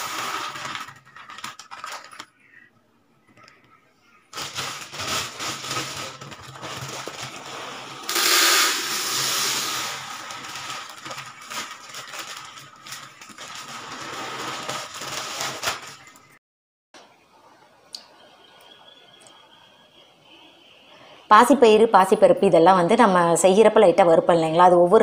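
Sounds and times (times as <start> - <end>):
dry grain pouring into container: 0.0 - 0.9, 4.4 - 16.1
plastic bag crinkling: 0.0 - 2.5, 4.3 - 16.4.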